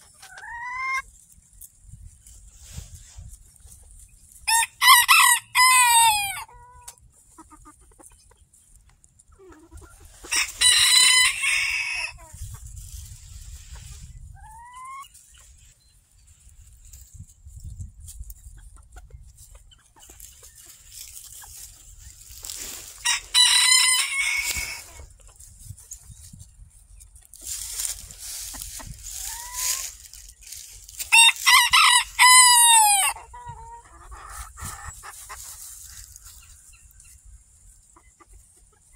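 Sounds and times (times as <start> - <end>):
rooster crowing: 10.6 - 12.2, 23.0 - 24.9, 31.1 - 33.2.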